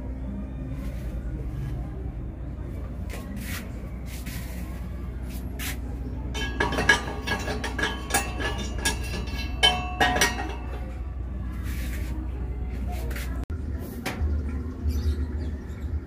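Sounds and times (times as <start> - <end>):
metal disc clinking and rattling: 6.3 - 11.2.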